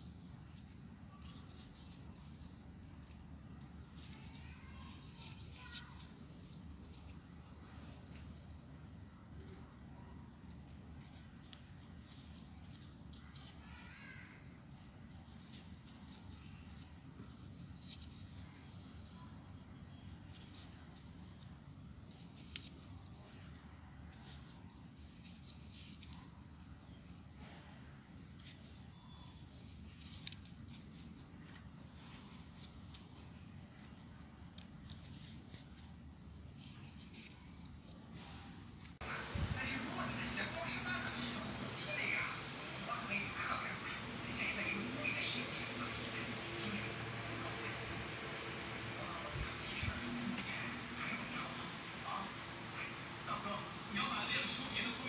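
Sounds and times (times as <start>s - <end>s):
paper rustling and clicking: 22.1s - 27.6s, 28.4s - 33.2s, 53.9s - 55.0s.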